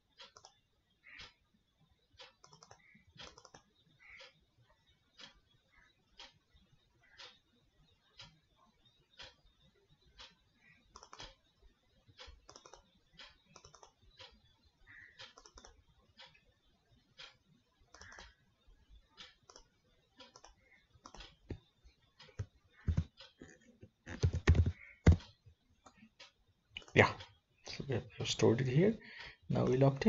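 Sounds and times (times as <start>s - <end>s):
computer mouse clicks: 0.1s - 1.4s, 2.2s - 4.4s, 10.0s - 11.5s, 12.1s - 16.4s, 17.2s - 18.4s, 19.0s - 27.3s
keyboard typing: 2.3s - 3.7s, 10.9s - 11.4s, 12.2s - 16.4s, 17.9s - 18.4s, 19.4s - 26.1s.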